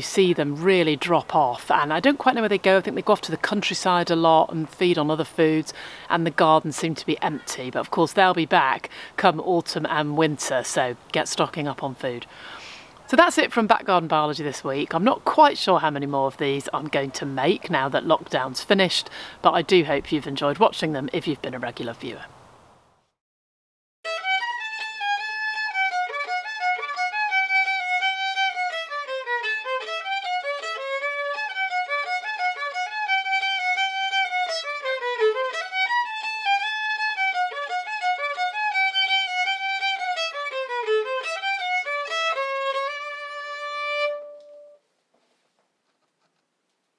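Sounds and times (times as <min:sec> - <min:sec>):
solo fiddle playing a tune: 0:24.1 - 0:44.8.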